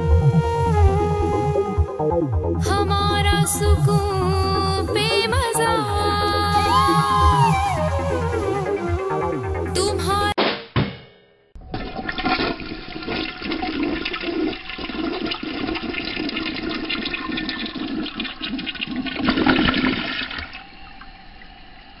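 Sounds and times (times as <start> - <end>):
rushing gurgling water: 11.6 - 22.0.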